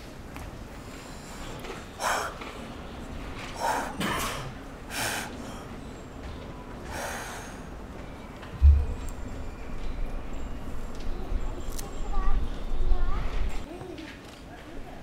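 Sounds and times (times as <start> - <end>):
faint steady background noise: 0.0 - 15.0
man breathing forcefully: 2.0 - 2.5, 3.6 - 4.1, 4.9 - 5.7, 6.9 - 7.7.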